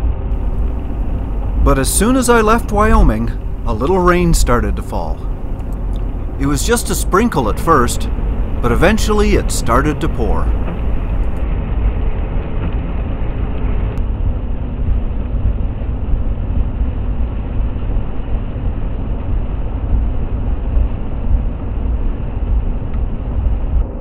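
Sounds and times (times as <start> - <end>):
tyre and engine rumble: 0.4 - 11.4.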